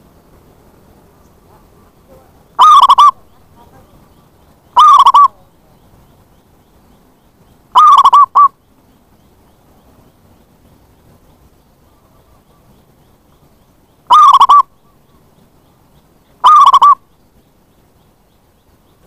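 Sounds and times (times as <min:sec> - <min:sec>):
dove cooing: 0:01.4 - 0:04.0, 0:04.7 - 0:05.6, 0:07.7 - 0:08.6, 0:14.1 - 0:14.8, 0:16.4 - 0:17.0.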